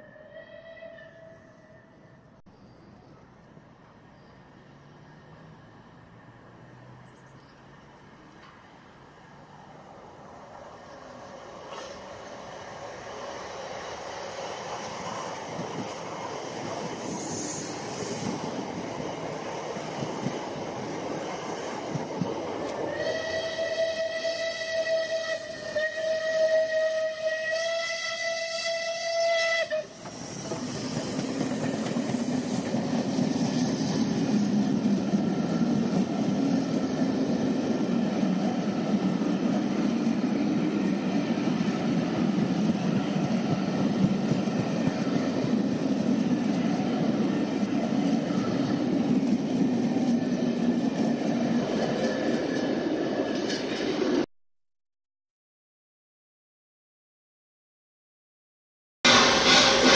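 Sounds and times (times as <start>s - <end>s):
steam locomotive whistle: 0.0s - 2.2s, 22.9s - 30.4s, 59.1s - 59.9s
rail noise: 0.0s - 54.3s, 59.1s - 59.9s
steam locomotive exhaust chuffing: 22.9s - 52.5s, 59.1s - 59.9s.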